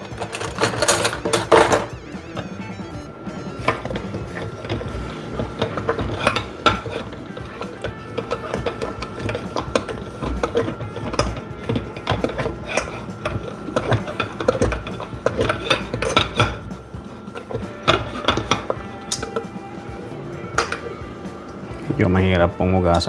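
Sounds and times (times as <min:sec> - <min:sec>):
scrubbing dishes: 0:03.5 - 0:21.0.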